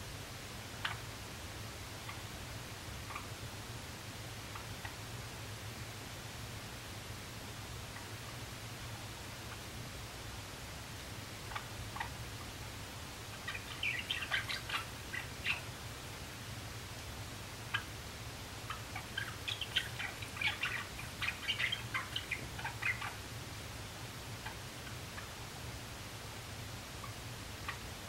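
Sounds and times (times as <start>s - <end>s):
sparrow chirping song: 11.5s - 12.2s, 13.3s - 15.8s, 18.7s - 23.2s.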